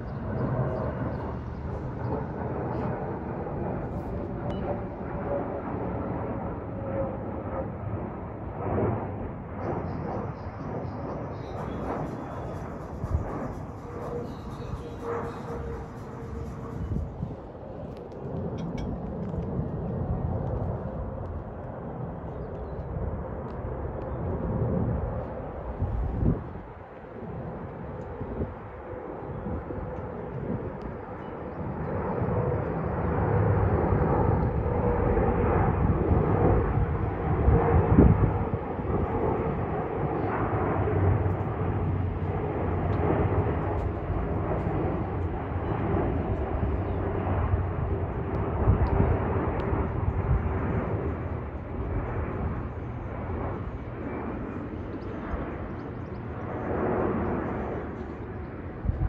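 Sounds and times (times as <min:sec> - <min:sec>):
jet airliner engine rumble: 0:00.0 - 0:59.0
faint engine whine: 0:08.6 - 0:27.1.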